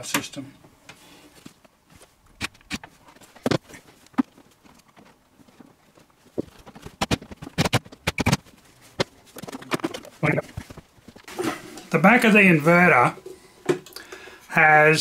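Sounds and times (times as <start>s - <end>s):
sharp clicks and knocks: 2.4s - 11.3s.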